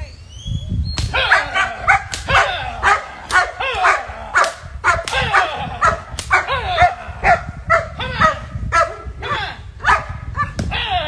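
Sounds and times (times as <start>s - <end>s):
dog barking: 1.2s - 9.1s, 9.8s - 10.6s.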